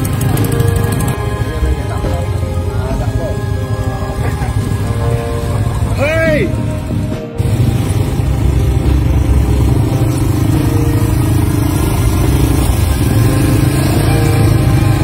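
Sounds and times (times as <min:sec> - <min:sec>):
quad bike engines passing by: 0:00.0 - 0:15.0.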